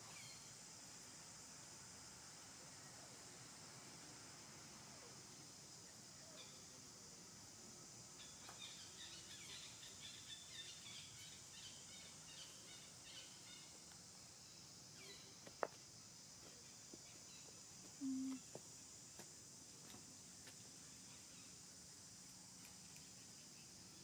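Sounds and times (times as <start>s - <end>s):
insect hiss: 0.0s - 24.0s
birds chirping softly: 8.2s - 15.7s.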